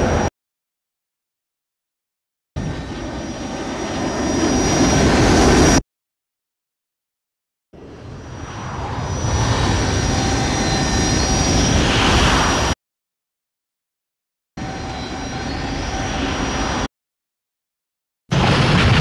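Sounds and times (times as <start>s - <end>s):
jet-like mechanical whine: 0.0s - 0.3s, 2.6s - 5.8s, 7.8s - 12.8s, 14.6s - 16.9s.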